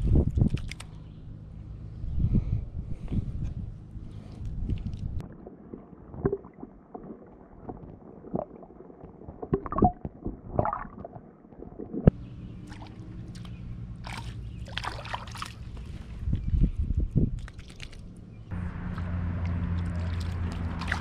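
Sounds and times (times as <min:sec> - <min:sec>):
steady low hum: 0:00.0 - 0:05.4, 0:11.8 - 0:17.4
underwater gurgling and sloshing: 0:02.9 - 0:16.6.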